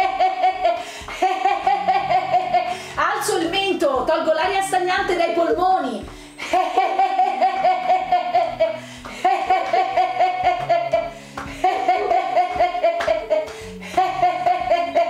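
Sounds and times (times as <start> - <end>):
woman laughing heartily: 0.0 - 2.9, 6.4 - 15.0
soft background music: 0.0 - 15.0.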